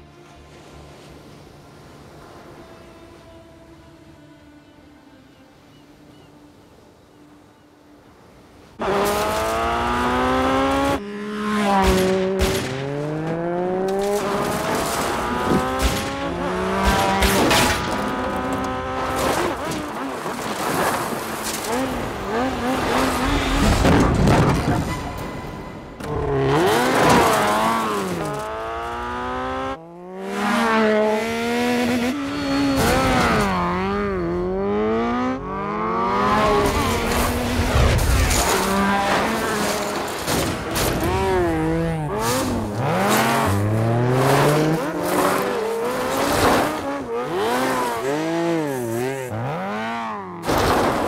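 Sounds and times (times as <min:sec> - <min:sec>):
motorcycle engines revving: 0:08.8 - 0:20.1, 0:21.5 - 0:23.9, 0:26.0 - 0:50.7
tyres skidding: 0:08.8 - 0:51.0.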